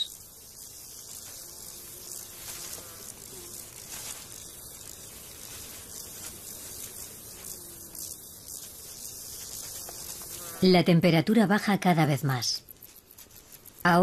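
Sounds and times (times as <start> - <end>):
insects buzzing and chirping: 0.0 - 14.0.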